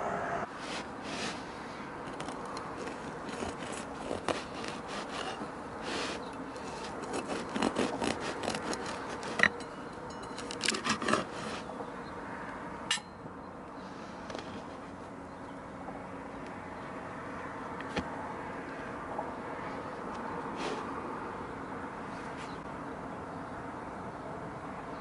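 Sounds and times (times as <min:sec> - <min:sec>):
knife sawing through bread crust: 0:02.1 - 0:09.6, 0:10.4 - 0:11.7.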